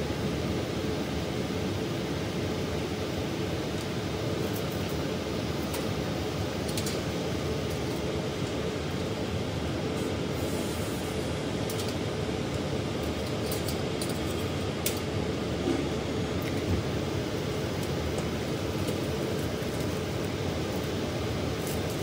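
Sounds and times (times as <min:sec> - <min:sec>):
cabinet blower airflow hum: 0:00.0 - 0:22.0.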